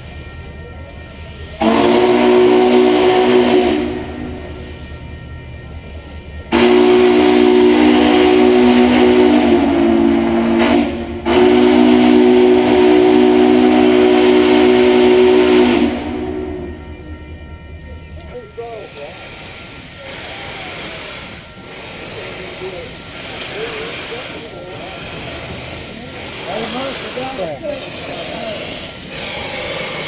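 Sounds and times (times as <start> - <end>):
steam whistle blowing a chord: 1.6 - 4.8, 6.5 - 17.1.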